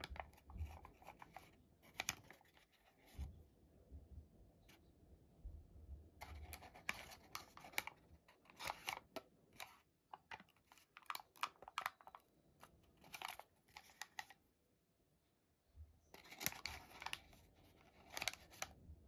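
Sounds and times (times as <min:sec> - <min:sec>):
paper crinkling as it is folded: 0:00.0 - 0:03.2, 0:06.2 - 0:14.4, 0:16.2 - 0:18.8.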